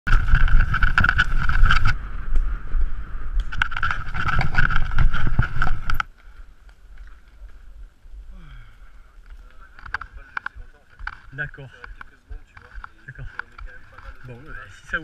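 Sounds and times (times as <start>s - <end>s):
bike knocks and rattles: 0.1s - 2.0s, 3.5s - 6.1s
wind buffeting microphone: 0.1s - 15.0s.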